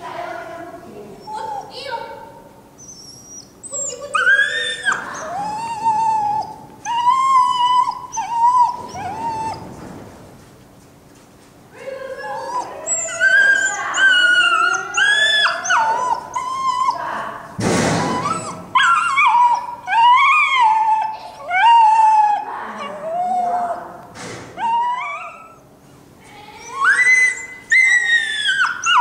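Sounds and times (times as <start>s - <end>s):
dog whining and yelping: 1.2s - 1.9s, 2.7s - 9.8s, 12.1s - 17.2s, 18.0s - 25.8s, 26.6s - 29.0s.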